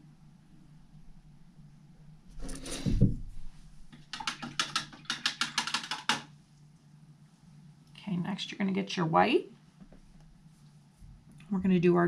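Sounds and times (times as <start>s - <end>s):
dull thump: 2.9s - 3.4s
rustle on a tabletop: 9.6s - 11.3s.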